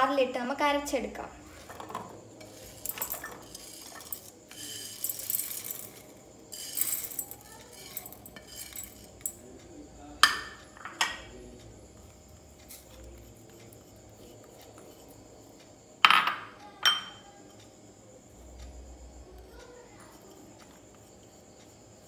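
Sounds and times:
plates clinking on metal jar: 1.7s - 9.4s, 16.0s - 17.2s.

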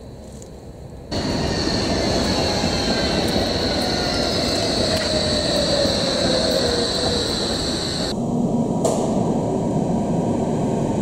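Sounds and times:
tram rolling on rails: 1.0s - 11.0s
high-pitched squeal: 1.1s - 8.2s.

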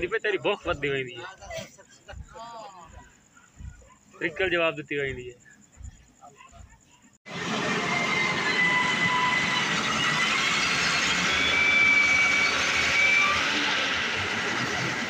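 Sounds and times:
heavy diesel machinery running: 7.3s - 15.0s
high squealing tones: 7.5s - 15.0s.

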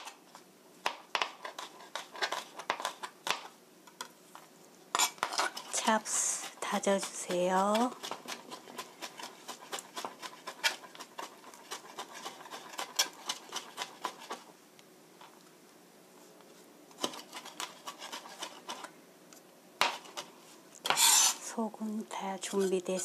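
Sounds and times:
knife chopping on plastic board: 0.8s - 3.5s, 7.0s - 14.4s.

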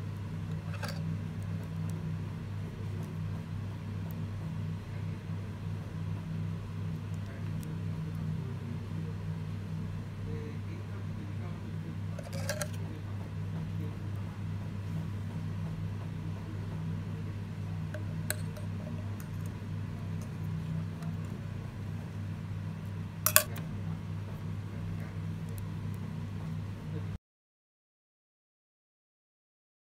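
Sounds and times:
steady low hum: 0.0s - 27.2s
small metal clicks: 23.3s - 23.6s.

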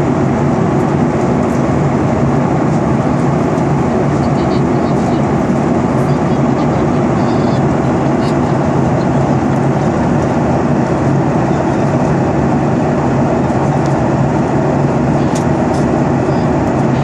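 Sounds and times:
airliner cabin engine drone: 0.0s - 17.0s
rushing airflow: 4.9s - 17.0s.

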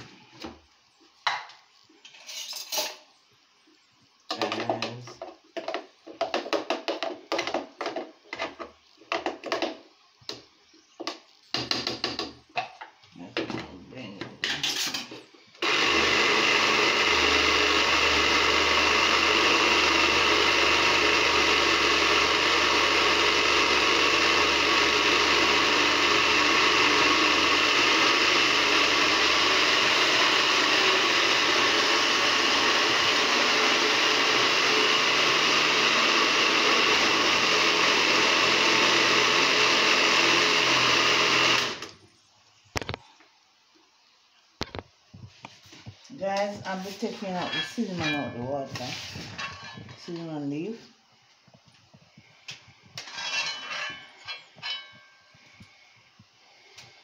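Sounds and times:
blender running: 14.4s - 42.0s.

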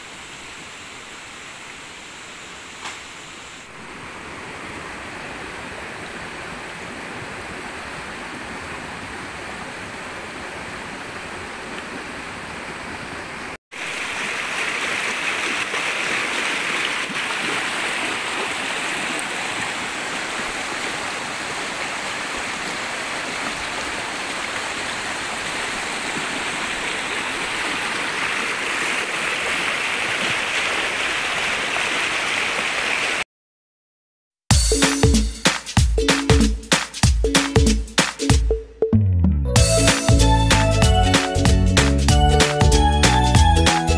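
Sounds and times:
river water rushing: 3.6s - 33.2s.

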